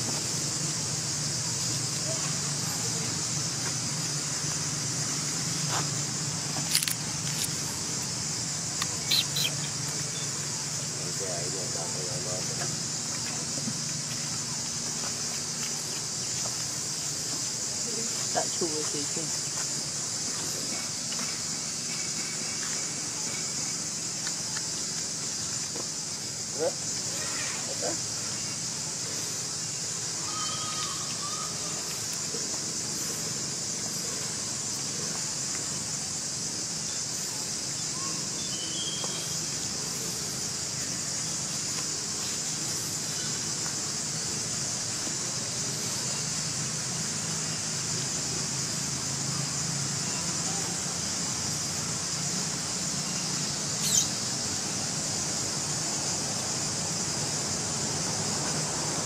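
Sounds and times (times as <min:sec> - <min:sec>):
insects droning: 0:00.0 - 0:59.0
faint bird chirps: 0:08.9 - 0:10.8, 0:37.8 - 0:39.4, 0:53.8 - 0:54.2.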